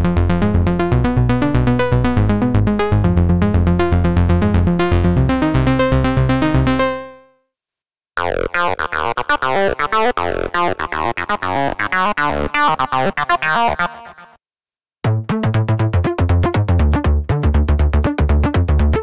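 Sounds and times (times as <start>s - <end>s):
synthesizer pitch sweeps: 8.2s - 14.3s
synthesizer bass loop: 8.2s - 14.4s.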